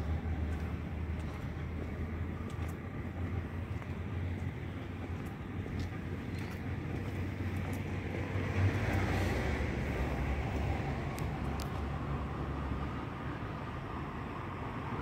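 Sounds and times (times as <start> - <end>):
low background rumble: 0.0 - 8.7.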